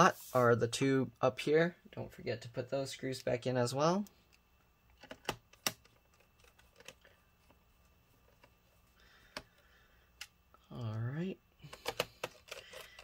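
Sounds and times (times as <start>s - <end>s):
screwdriver and screws clicking on plastic: 11.7s - 13.0s.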